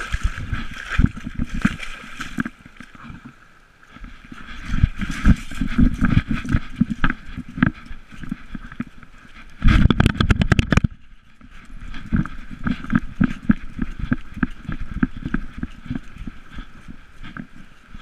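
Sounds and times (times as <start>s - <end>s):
camera knocking and rattling: 4.6s - 11.0s, 11.9s - 16.1s.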